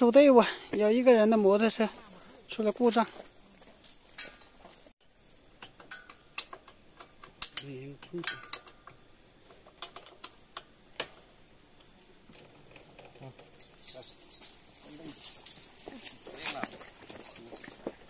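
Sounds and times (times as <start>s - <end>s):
crickets buzzing: 0.0s - 18.0s
sharp clicks and knocks: 5.6s - 11.2s.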